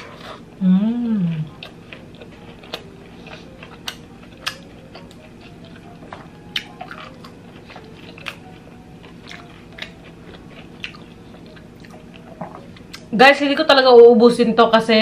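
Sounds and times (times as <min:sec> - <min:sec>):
chewing crispy fried chicken: 0:00.0 - 0:13.1
breading crunching: 0:01.5 - 0:12.5.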